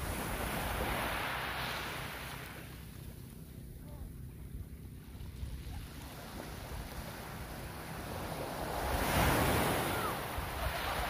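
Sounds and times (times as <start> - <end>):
small sea waves washing onto beach: 0.0 - 3.2
wind rumble on microphone: 3.7 - 11.0.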